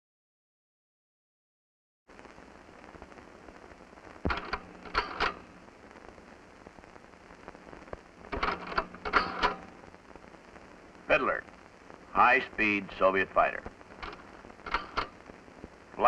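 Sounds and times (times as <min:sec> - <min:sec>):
film soundtrack hiss and crackle: 0:02.1 - 0:16.0.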